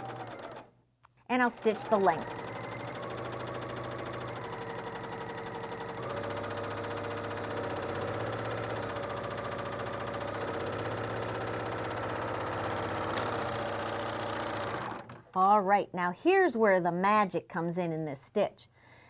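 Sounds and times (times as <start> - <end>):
overlock sewing machine running: 0.0 - 0.7, 1.6 - 15.3.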